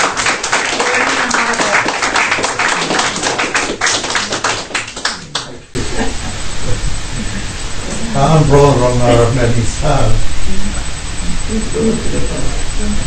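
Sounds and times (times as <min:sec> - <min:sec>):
audience applauding: 0:00.0 - 0:05.7
steady hiss: 0:01.4 - 0:13.0
voices: 0:05.0 - 0:13.0.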